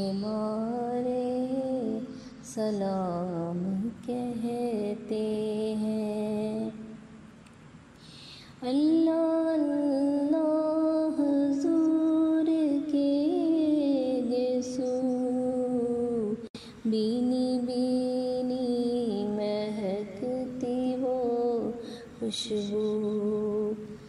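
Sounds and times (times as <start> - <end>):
woman singing long held notes: 8.6 - 24.0.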